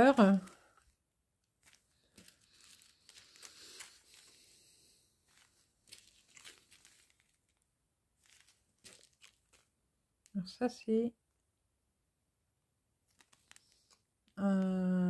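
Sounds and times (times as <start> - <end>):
plastic bags crinkling: 0.0 - 10.4, 13.1 - 14.0.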